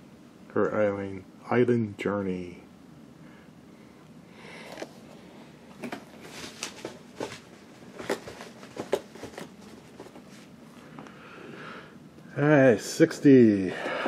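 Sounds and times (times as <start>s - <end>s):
cardboard boxes being handled: 5.8s - 10.6s.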